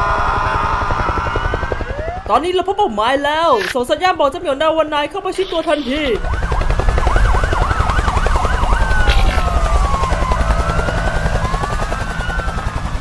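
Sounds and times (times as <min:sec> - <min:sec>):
emergency vehicle sirens: 0:00.0 - 0:03.8, 0:05.4 - 0:13.0
rapid chopping pulse: 0:09.0 - 0:10.8.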